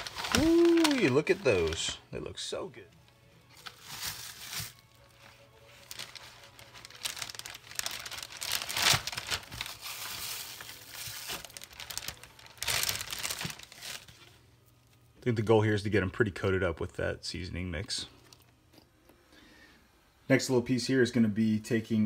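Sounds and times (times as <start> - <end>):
plastic wrap crinkling: 0.0 - 2.0, 3.5 - 15.0.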